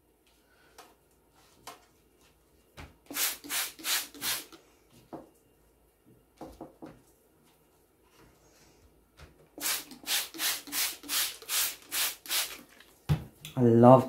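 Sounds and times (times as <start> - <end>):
spray bottle hissing sprays: 3.1 - 4.6, 9.6 - 12.8.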